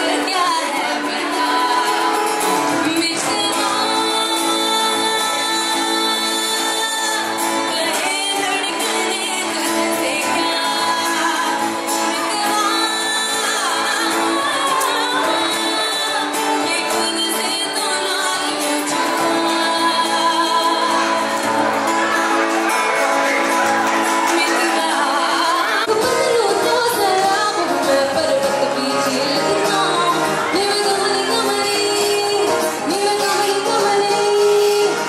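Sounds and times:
acoustic guitar chords: 0:00.0 - 0:35.0
person singing into microphone: 0:00.0 - 0:35.0.

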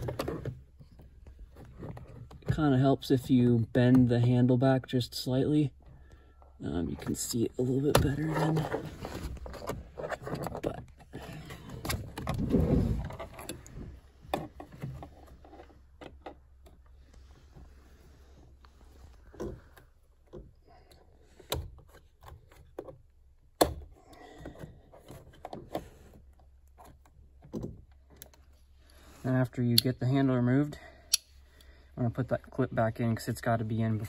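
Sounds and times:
metal pick scraping plastic: 0:07.9 - 0:16.4.

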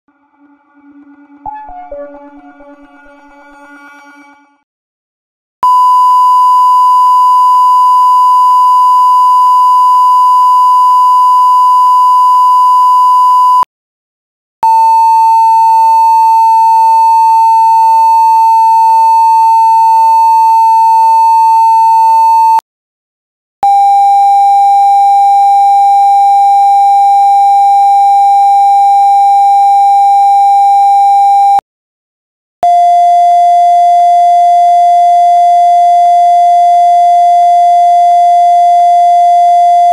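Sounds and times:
censor bleep tones: 0:05.6 - 0:13.7, 0:20.8 - 0:22.3, 0:23.6 - 0:31.6, 0:32.6 - 0:39.9.

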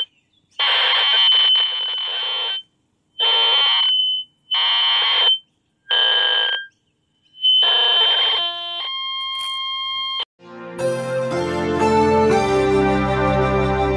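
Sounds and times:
steady electronic chord: 0:10.4 - 0:13.9.

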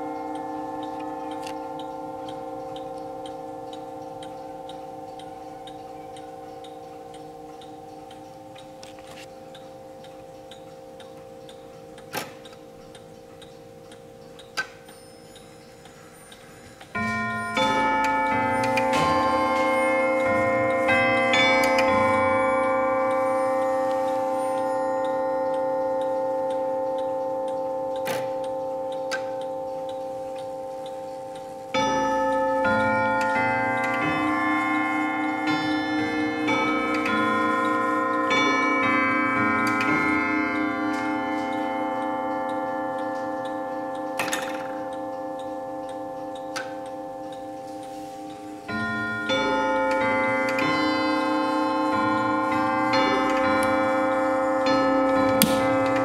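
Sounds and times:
clock chiming on bells: 0:00.0 - 0:56.0.

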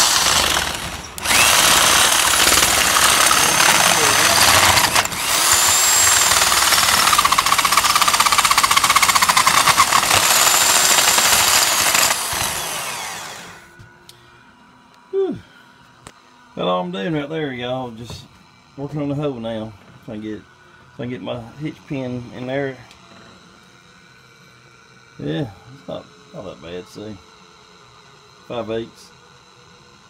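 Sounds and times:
electric drill grinding steel: 0:00.0 - 0:13.7.

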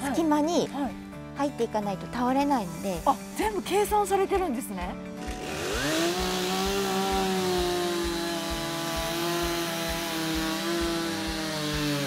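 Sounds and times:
chainsaw cutting tree: 0:05.2 - 0:12.0.

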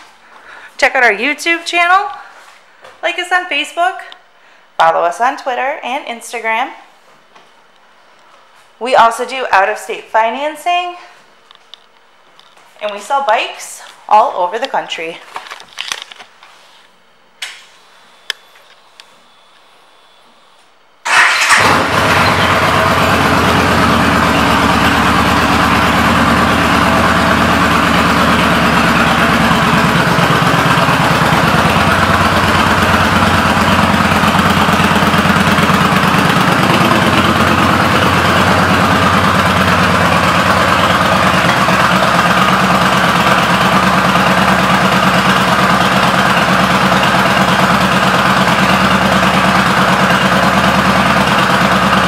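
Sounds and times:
motorcycle engine idling: 0:21.1 - 0:52.0.

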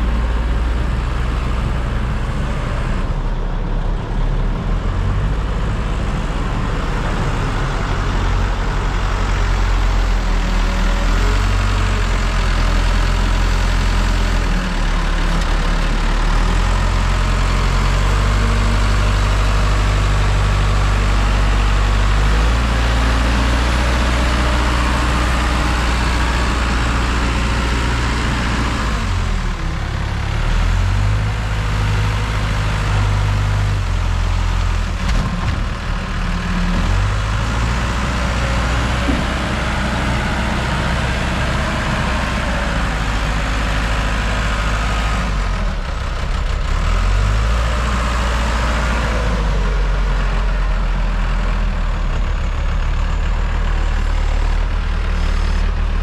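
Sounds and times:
heavy diesel engine under load: 0:00.0 - 0:56.0.

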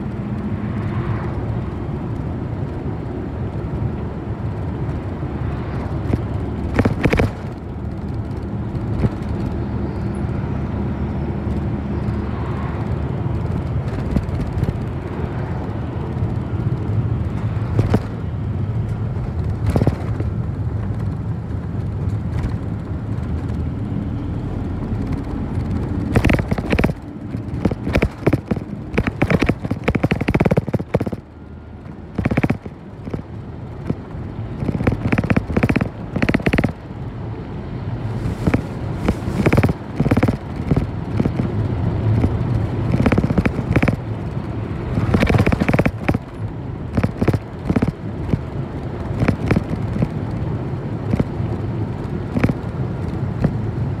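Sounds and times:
bus engine and road rumble: 0:00.0 - 0:54.0
knocks and rattles: 0:05.8 - 0:09.6, 0:13.4 - 0:15.3, 0:16.8 - 0:18.3, 0:18.9 - 0:23.6, 0:24.9 - 0:36.8, 0:38.3 - 0:48.5, 0:49.1 - 0:50.2, 0:51.1 - 0:51.4, 0:52.3 - 0:53.6.

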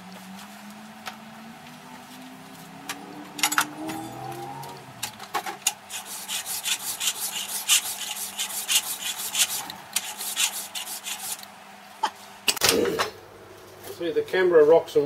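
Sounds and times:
file rasping on metal: 0:05.9 - 0:11.4.

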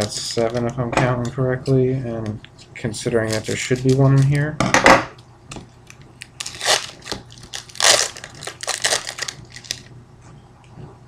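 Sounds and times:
plastic wrapper crinkling: 0:03.0 - 0:04.4, 0:05.8 - 0:09.9.

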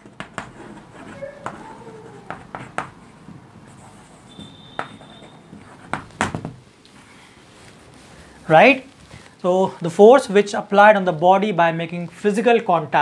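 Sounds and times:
chalk tapping on a board: 0:00.0 - 0:01.6, 0:02.3 - 0:06.6
chalk writing on a chalkboard: 0:00.0 - 0:06.1.

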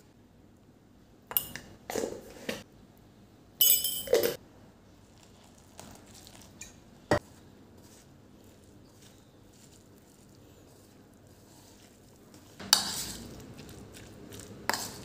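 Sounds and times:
spoon scraping mixing bowl: 0:07.1 - 0:15.0.

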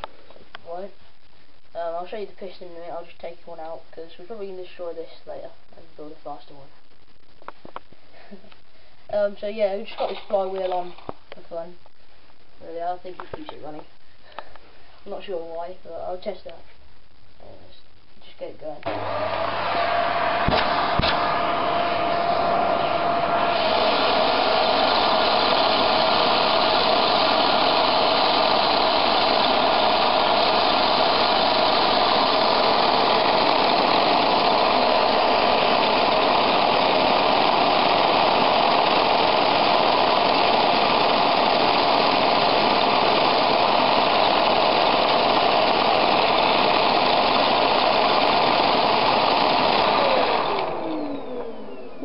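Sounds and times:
vacuum cleaner running: 0:18.8 - 0:52.0.

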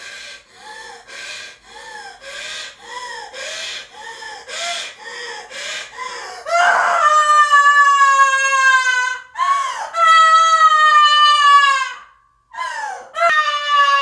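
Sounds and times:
woman wailing screams: 0:06.5 - 0:14.0.

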